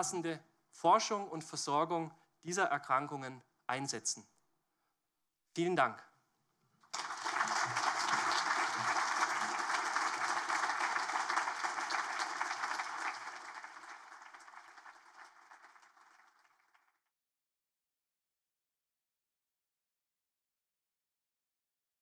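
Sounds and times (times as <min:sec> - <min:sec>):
audience applauding: 0:06.9 - 0:17.0.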